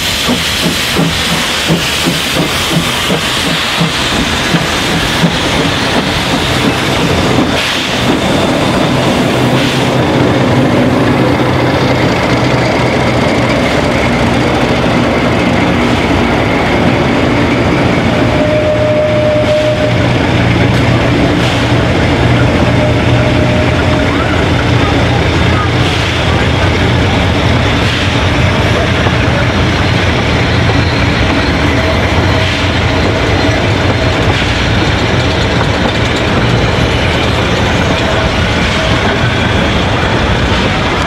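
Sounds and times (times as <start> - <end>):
diesel locomotive running: 0.0 - 41.0
steam locomotive hissing steam: 0.0 - 41.0
wheels clacking over rail joints: 0.0 - 41.0.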